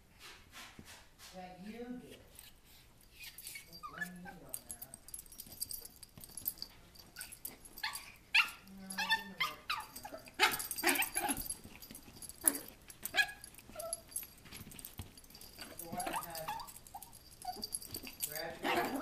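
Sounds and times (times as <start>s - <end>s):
small dog yipping and whining: 3.2s - 4.4s, 12.4s - 14.2s.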